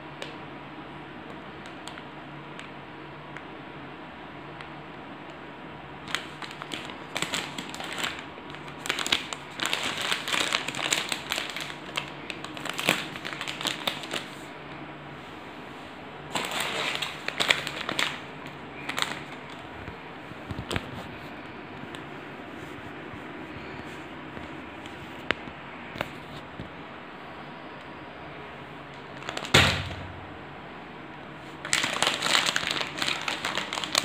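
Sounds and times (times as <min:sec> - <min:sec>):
plastic wrapper crinkling: 0:06.0 - 0:14.5, 0:16.3 - 0:19.9, 0:29.0 - 0:30.4, 0:31.5 - 0:34.0.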